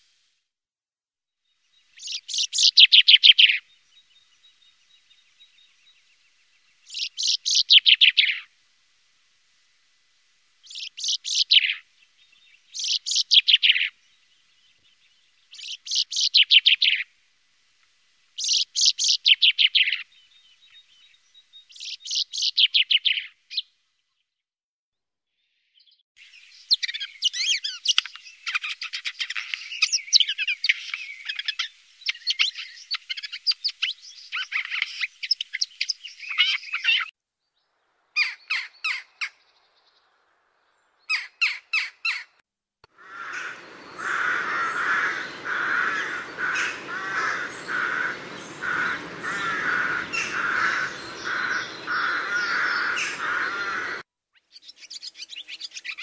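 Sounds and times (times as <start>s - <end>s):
chaffinch singing: 1.7s - 8.5s, 10.6s - 17.1s, 18.4s - 23.7s, 26.2s - 37.1s, 43.0s - 56.0s
jackdaw calls: 26.3s - 37.1s, 38.2s - 39.4s, 41.1s - 56.0s
dense continuous twittering: 43.0s - 54.0s.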